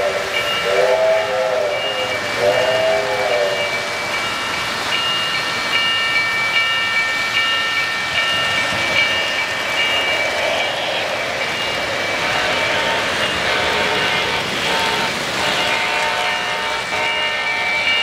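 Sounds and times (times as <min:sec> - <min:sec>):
crossing signal bell beeping: 0:00.0 - 0:18.0
model train running on track: 0:00.0 - 0:18.0.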